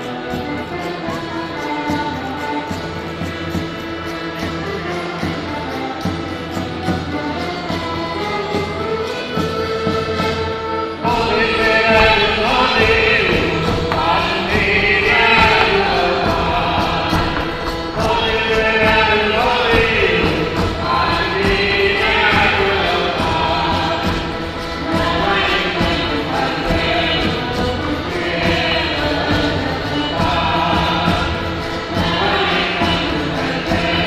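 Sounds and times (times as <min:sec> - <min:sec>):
folk ensemble with accordion: 0:00.0 - 0:34.0
group singing: 0:11.0 - 0:34.0.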